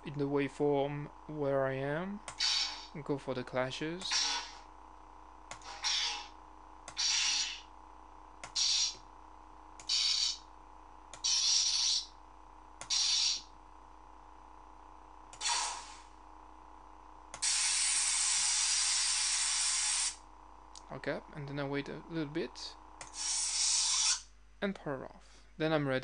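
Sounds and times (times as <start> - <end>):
lightsaber blade hum: 2.3 - 4.7, 5.6 - 7.7, 8.4 - 9.1, 9.8 - 10.5, 11.2 - 12.2, 12.8 - 13.5, 15.4 - 16.2, 17.4 - 20.2, 22.6 - 24.3
lightsaber clash sounds: 4.0 - 4.6.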